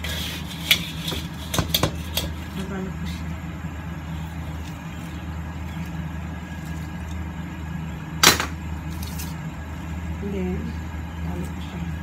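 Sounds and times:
appliance fan humming: 0:00.0 - 0:12.0.

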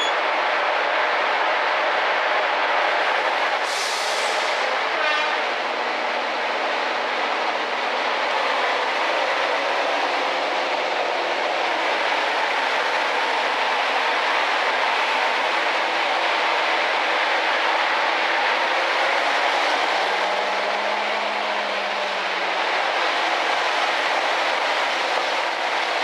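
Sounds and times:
diesel locomotive engines working: 0:00.0 - 0:26.0
wheel-on-rail noise: 0:00.0 - 0:26.0
rushing air: 0:03.5 - 0:04.9
brief hiss: 0:03.7 - 0:04.6.

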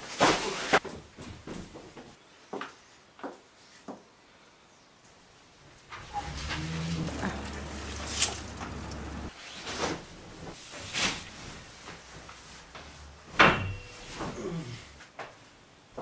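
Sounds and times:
thump on metal-framed bed: 0:13.3 - 0:14.0.

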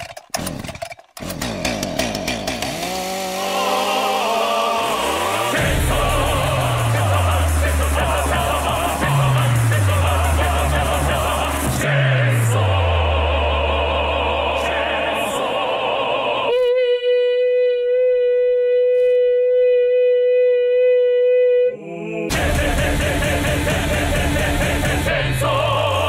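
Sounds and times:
wavering singing voice: 0:03.5 - 0:26.0
deep held bass notes: 0:04.2 - 0:15.8, 0:22.3 - 0:26.0.

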